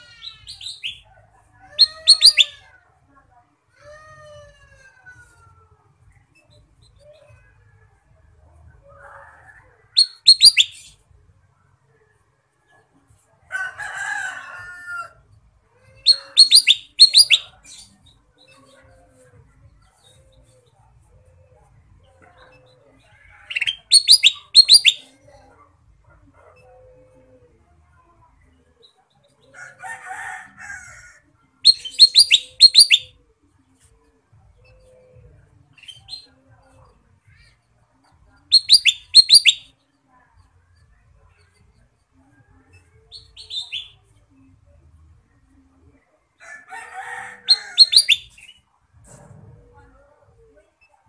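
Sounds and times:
bulbul whistled calls: 1.8 - 2.5, 10.0 - 10.8, 16.1 - 17.5, 23.5 - 25.0, 31.7 - 33.1, 38.5 - 39.6, 47.5 - 48.6.

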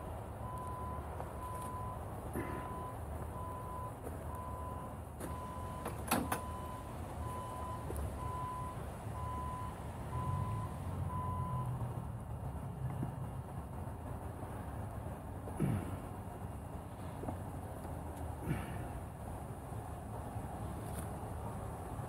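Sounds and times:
reversing alarm beeping: 0.4 - 11.8.

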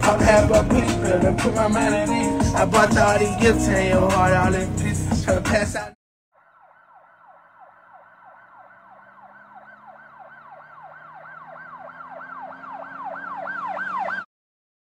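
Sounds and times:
siren yelping: 6.4 - 14.3.

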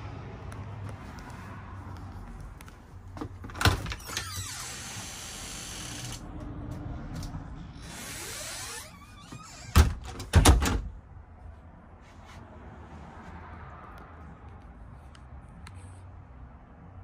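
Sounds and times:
door squeaking: 3.6 - 6.2, 7.8 - 10.7.

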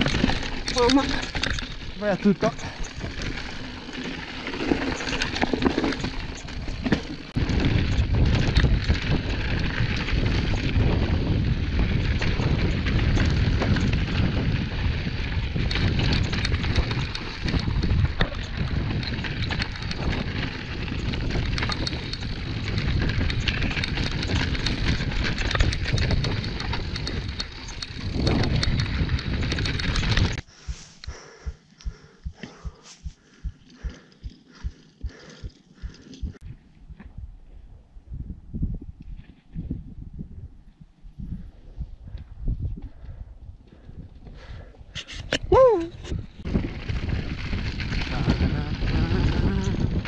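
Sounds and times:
mountain bike clatter on rocks: 0.0 - 30.4, 46.0 - 50.0
wind on microphone: 4.4 - 50.0.

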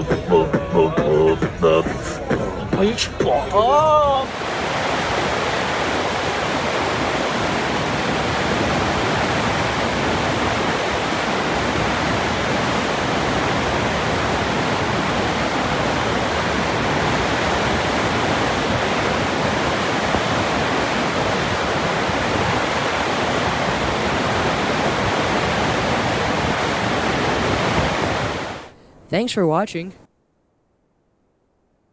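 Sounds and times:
churning white water rushing: 3.8 - 28.7.

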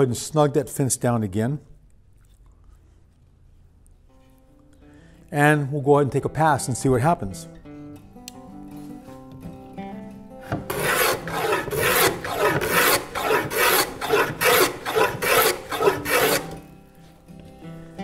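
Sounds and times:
hand plane rasping on wood: 10.5 - 16.6.

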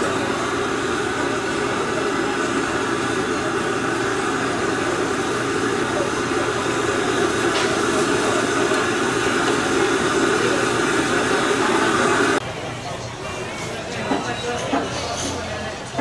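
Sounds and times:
gas burner rushing: 0.0 - 12.4.

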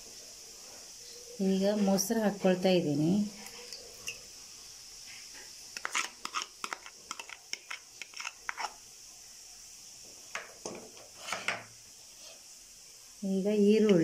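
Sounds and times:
steady high hiss: 0.0 - 14.0
metal spoon scraping a bowl: 5.8 - 8.8.

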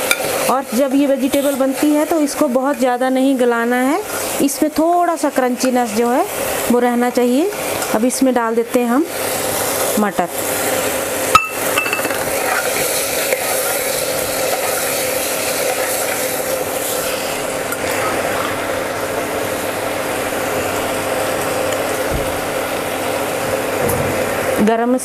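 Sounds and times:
steady hum: 0.0 - 25.0
spoon clinking against pot: 11.4 - 12.6
metal spoon stirring vegetables: 11.4 - 17.1.

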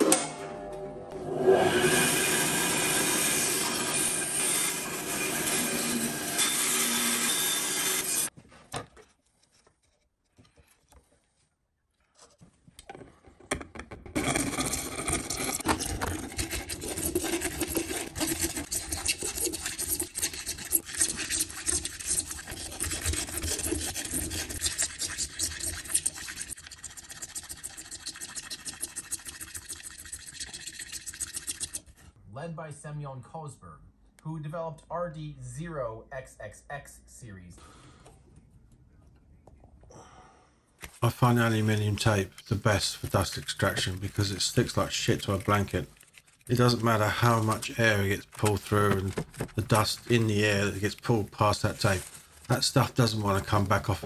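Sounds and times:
bandsaw cutting plastic: 1.7 - 8.3, 14.0 - 26.6, 40.8 - 54.0
hand file rasping plastic: 14.2 - 32.0, 42.4 - 52.6.

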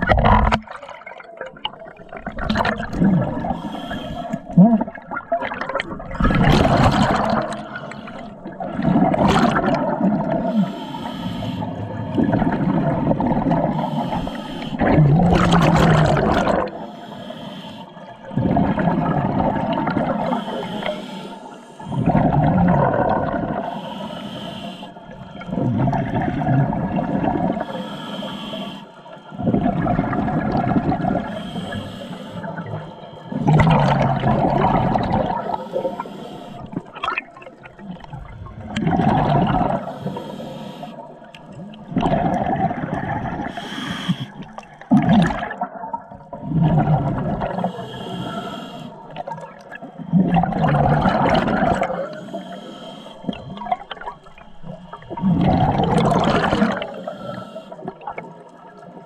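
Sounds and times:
diver exhaling bubbles underwater: 0.0 - 10.9, 11.7 - 16.9, 18.2 - 21.0, 21.9 - 23.8, 25.1 - 27.8, 29.3 - 36.0, 36.6 - 40.4, 41.2 - 52.5, 53.2 - 58.9
diver inhaling through regulator: 3.0 - 4.6, 10.4 - 12.0, 13.6 - 18.2, 19.6 - 22.4, 23.5 - 25.6, 27.4 - 29.4, 30.9 - 37.0, 39.2 - 44.6, 47.4 - 58.0.

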